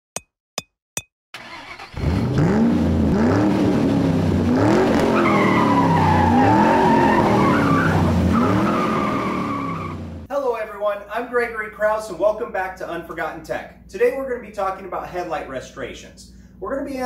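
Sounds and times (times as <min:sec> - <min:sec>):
car engine revving: 0:01.4 - 0:10.3
tyres squealing: 0:05.1 - 0:10.0.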